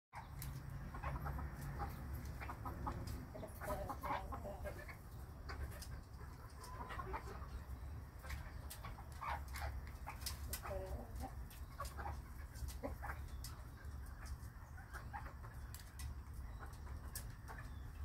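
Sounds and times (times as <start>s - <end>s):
hens clucking: 0.2s - 18.0s.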